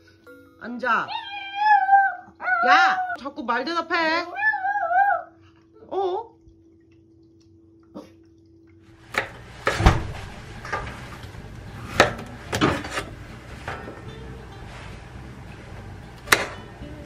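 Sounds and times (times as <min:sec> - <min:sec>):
knife chopping on steel board: 0:16.3 - 0:16.6.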